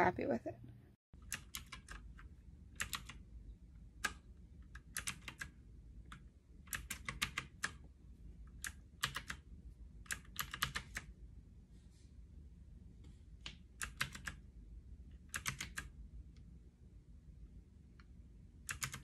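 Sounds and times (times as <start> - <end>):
mechanical keyboard key clicks: 18.7 - 19.0.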